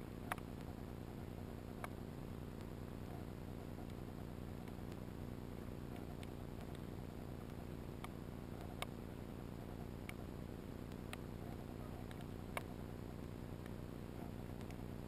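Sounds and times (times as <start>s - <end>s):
sharp clicks: 0.2s - 0.8s, 5.9s - 9.0s, 9.7s - 13.8s, 14.4s - 14.8s.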